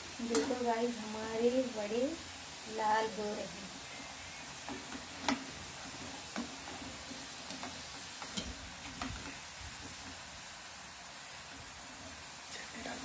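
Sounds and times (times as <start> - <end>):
food sizzling in hot oil: 0.0 - 13.0
metal spoon clicking on pan: 0.3 - 0.6.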